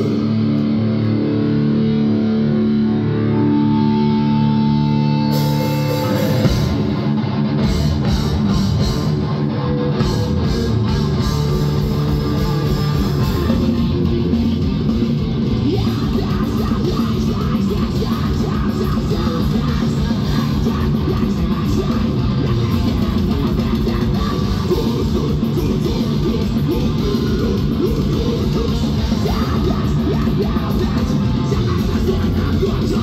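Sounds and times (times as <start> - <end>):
heavy metal band playing: 0.0 - 33.0.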